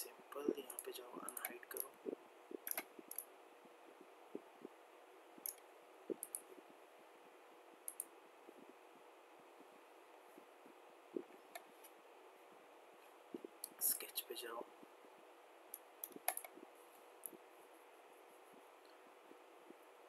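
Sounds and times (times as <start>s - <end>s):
faint steady hiss: 0.0s - 20.0s
computer mouse clicking: 0.6s - 3.3s, 5.4s - 6.6s, 7.8s - 8.1s, 15.7s - 16.6s.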